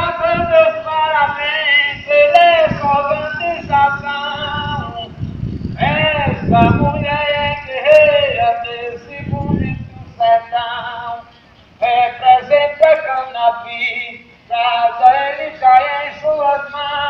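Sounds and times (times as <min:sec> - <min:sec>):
person singing: 0:00.0 - 0:05.1.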